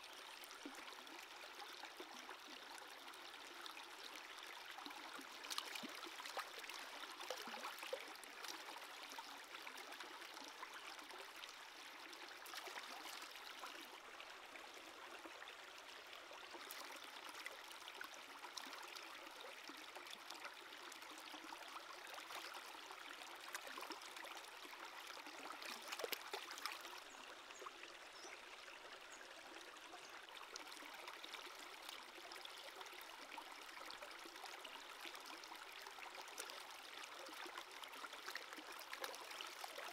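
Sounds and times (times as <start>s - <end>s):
stream running over rocks: 0.0s - 39.9s.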